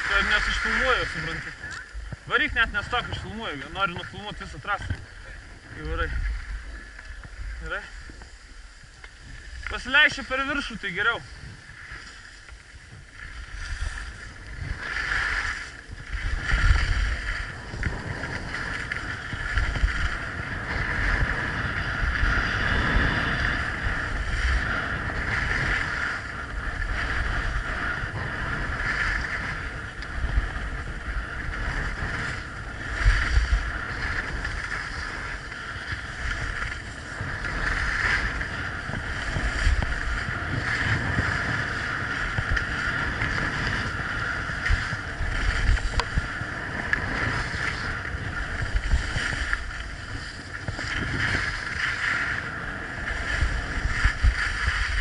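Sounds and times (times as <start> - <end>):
skis scraping over snow: 0.0 - 55.0
wind rumbling on microphone: 0.0 - 55.0.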